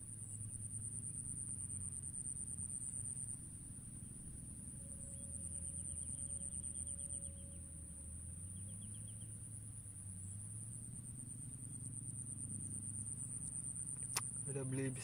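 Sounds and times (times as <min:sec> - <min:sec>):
high-pitched insect whine: 0:00.1 - 0:15.0
rapid trill of ticks: 0:11.5 - 0:15.0.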